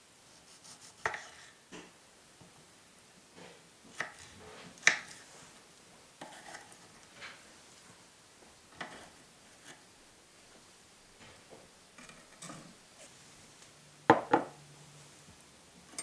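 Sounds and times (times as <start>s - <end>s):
knife tapping wooden cutting board: 14.1s - 14.6s.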